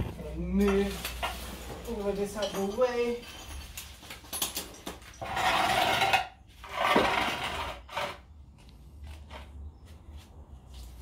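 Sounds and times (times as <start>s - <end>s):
metallic rattling and scraping: 0.0s - 8.3s.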